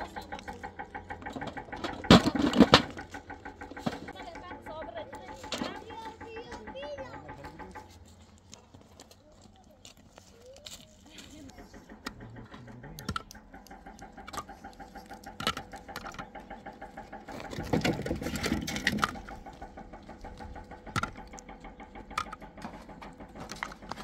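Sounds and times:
small motor running: 0.0s - 24.0s
sharp clicks: 11.5s - 24.0s.

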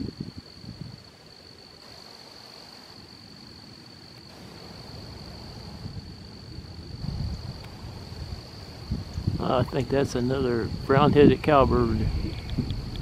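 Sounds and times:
high-pitched insect trill: 0.0s - 13.0s.

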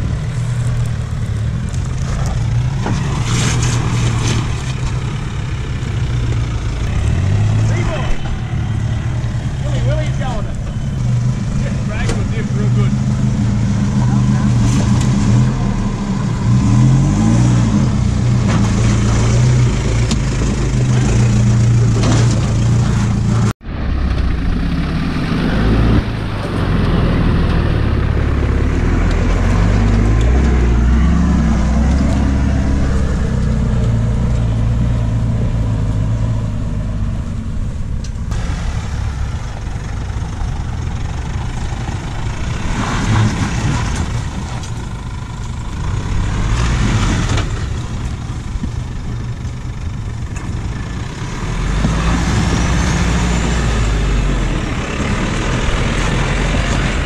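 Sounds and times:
engines running at low revs: 0.0s - 57.0s.

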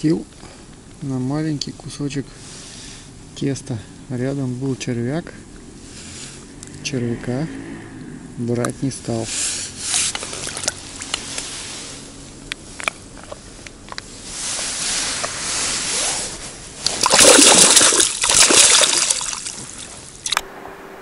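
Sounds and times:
fish splashing in water: 16.8s - 20.4s.

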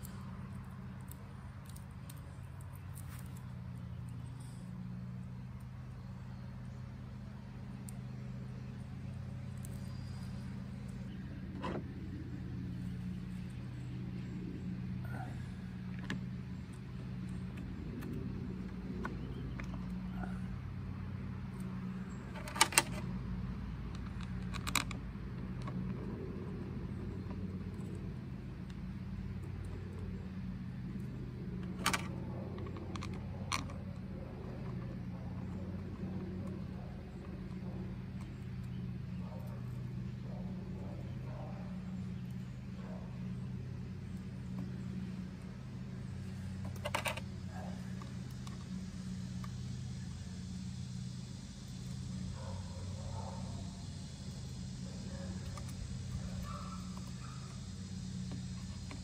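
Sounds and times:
light ticks of handled parts: 0.0s - 4.8s
steady low hum: 0.0s - 59.0s.

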